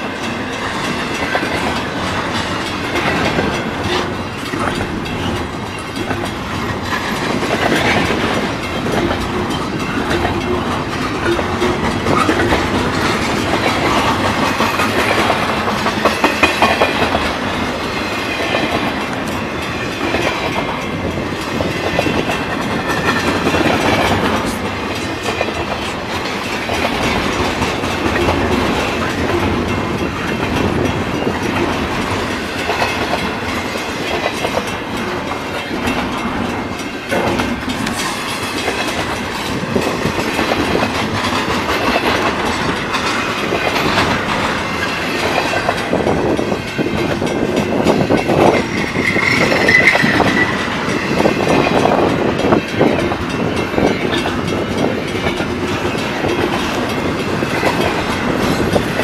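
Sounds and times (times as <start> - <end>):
freight train passing: 0.0 - 59.0
high squeal: 48.6 - 51.1.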